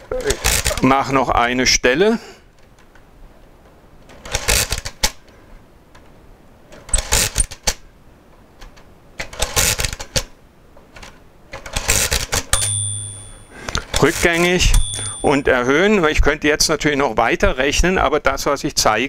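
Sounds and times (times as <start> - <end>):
calculator bell ringing: 12.6 - 13.7, 14.5 - 15.7.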